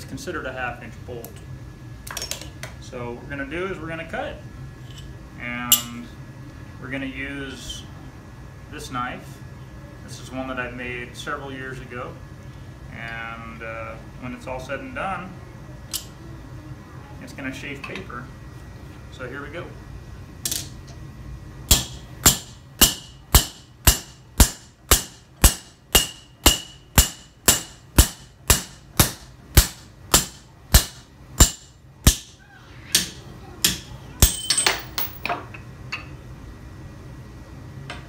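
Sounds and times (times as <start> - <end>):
hammer striking steel with metallic ring: 21.7 - 32.4.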